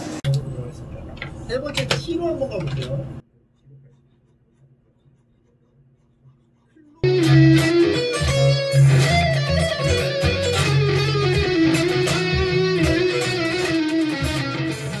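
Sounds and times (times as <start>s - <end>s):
electric guitar band music: 7.0s - 15.0s.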